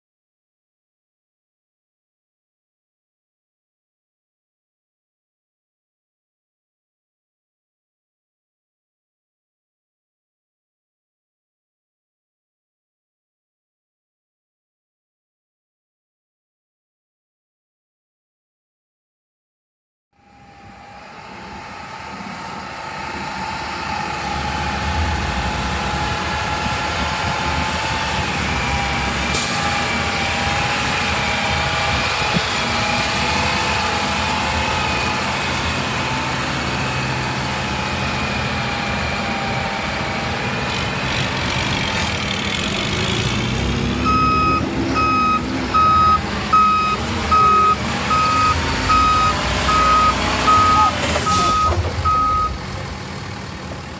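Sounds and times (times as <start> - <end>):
diesel truck engine driving past: 20.2 - 53.9
steady whine: 23.1 - 27.5
backup alarm beeping: 44.0 - 52.6.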